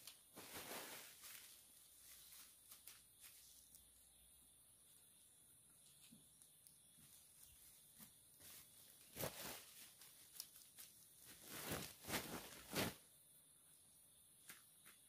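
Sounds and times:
bananas rustling on plastic sheet: 0.0 - 3.8, 7.0 - 13.1.

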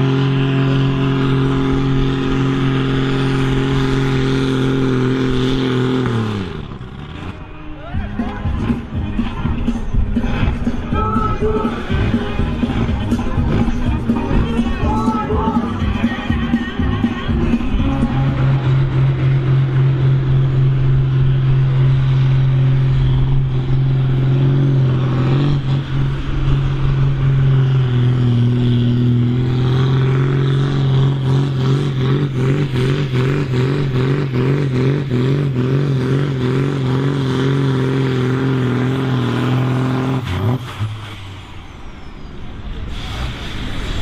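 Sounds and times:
tractor diesel engine under load: 0.0 - 44.0.

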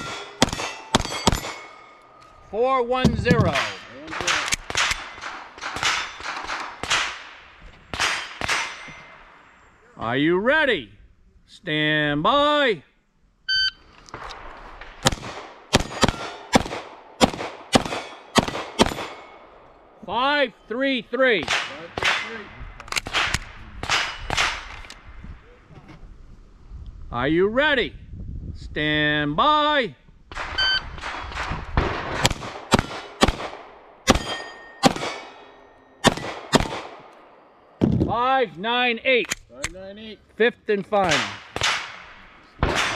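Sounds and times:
gunshots: 0.0 - 1.9, 3.0 - 9.0, 14.1 - 19.4, 21.4 - 24.9, 30.3 - 35.4, 36.0 - 38.1, 41.0 - 42.9
pistol shots: 0.0 - 1.9, 3.1 - 8.9, 14.3 - 19.5, 21.4 - 24.9, 30.3 - 37.9, 41.0 - 42.9
steel plates ringing: 0.0 - 4.4, 5.0 - 6.4, 8.0 - 9.4, 34.1 - 36.1
shot timer beep: 13.5 - 13.8, 30.6 - 30.9.

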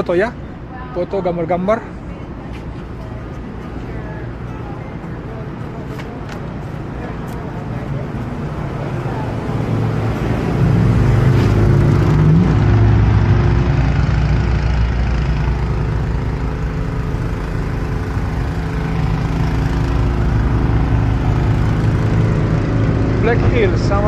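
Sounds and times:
vehicle engine running and revving: 6.9 - 24.0.

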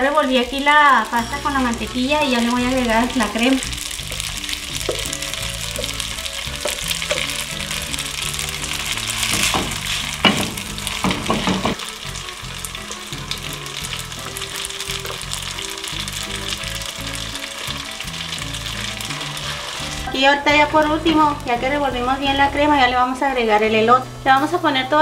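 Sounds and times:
sauce sizzling in a pot: 0.0 - 25.0
soft background music: 0.0 - 25.0
spatula scraping a pot: 1.8 - 11.8, 19.2 - 20.2.

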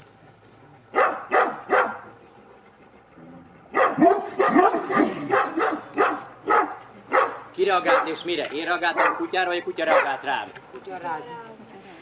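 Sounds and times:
dog barking: 0.9 - 2.1, 3.7 - 8.2, 8.9 - 9.3, 9.9 - 10.3.

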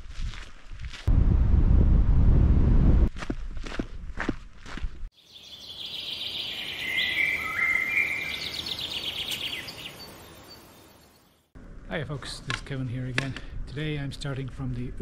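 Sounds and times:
footsteps crunching on gravel: 0.0 - 1.1, 3.1 - 5.1.

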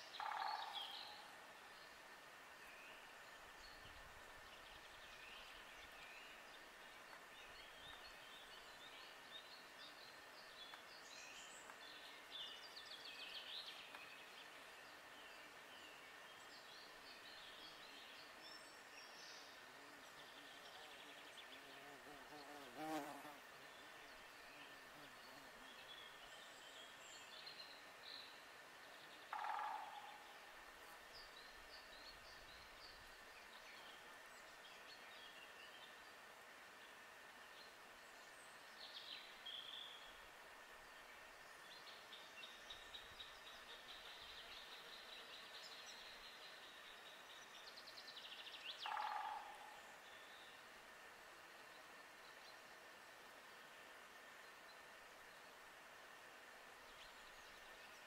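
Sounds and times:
songbirds chirping: 0.0 - 58.0
insect buzzing past: 21.5 - 23.6.

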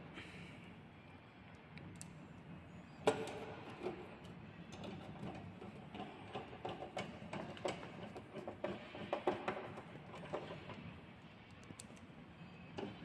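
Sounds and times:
screwdriver clicks and ticks: 1.8 - 2.1.

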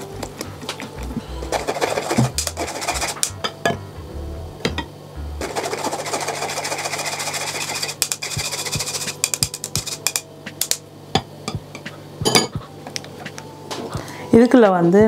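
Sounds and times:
spoon scraping metal mesh sieve: 5.4 - 10.2.

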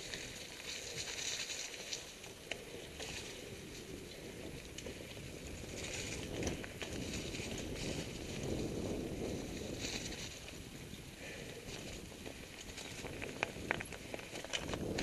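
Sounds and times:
tyres crunching over leaves: 0.0 - 15.0
bike knocks and rattles: 11.3 - 15.0.

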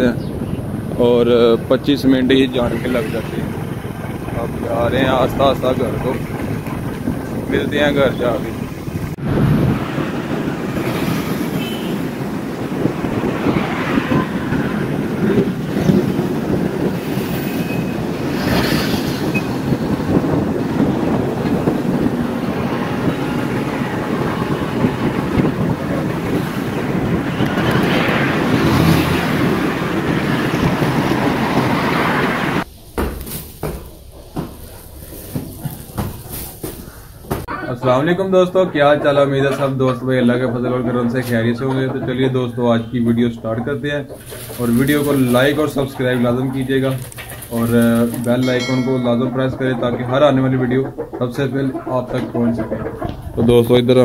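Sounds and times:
wind on microphone: 0.0 - 32.8, 38.8 - 54.0
passing traffic: 0.0 - 54.0
plastic sack rustling: 32.7 - 37.0, 44.2 - 45.6.

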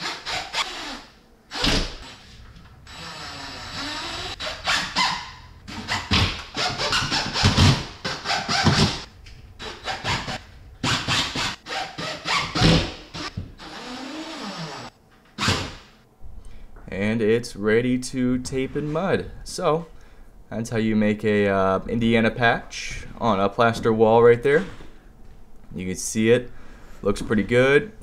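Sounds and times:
power drill driving screws: 2.9 - 5.0, 10.9 - 15.5.

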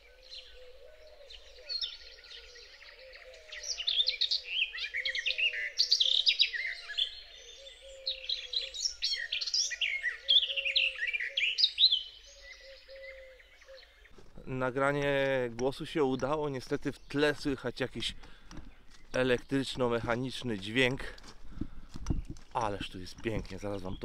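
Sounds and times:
songbird warbling: 0.0 - 14.5.

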